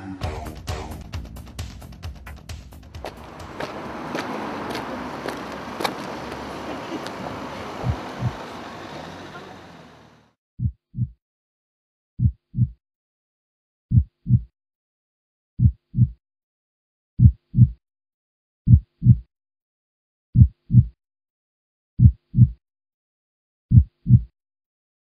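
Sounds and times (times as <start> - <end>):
heartbeat thumps: 2.9 - 6.1, 7.8 - 8.4, 10.6 - 11.2, 12.2 - 12.8, 13.9 - 14.5, 15.6 - 16.2, 17.2 - 17.8, 18.7 - 19.3, 20.4 - 21.0, 22.0 - 22.6, 23.7 - 24.3.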